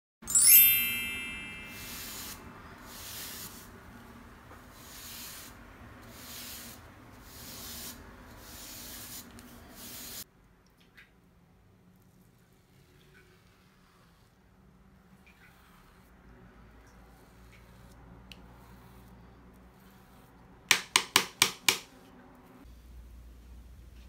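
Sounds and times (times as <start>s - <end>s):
bright chime: 0.2s - 2.4s.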